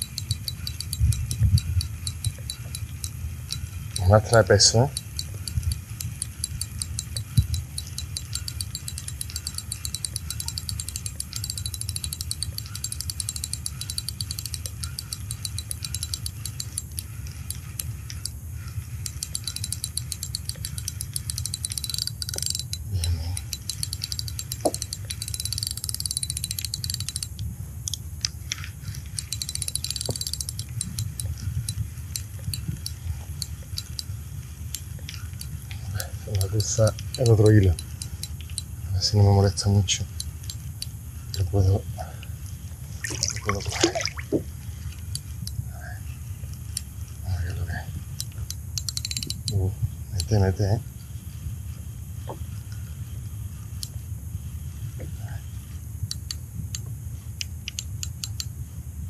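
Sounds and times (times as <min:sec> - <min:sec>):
fishing reel clicking whir: 0:00.0 - 0:41.5, 0:48.1 - 0:49.6.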